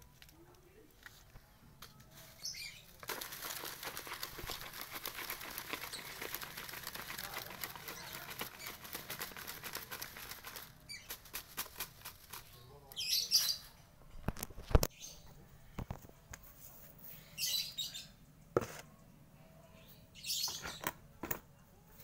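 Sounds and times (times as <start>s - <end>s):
broom bristles swishing paint: 2.2s - 12.5s.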